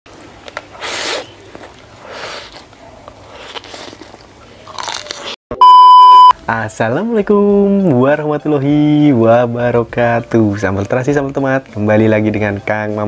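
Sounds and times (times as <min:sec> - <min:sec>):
man slurping noodles: 0:00.7 - 0:02.6
loud electronic beep: 0:05.6 - 0:06.3.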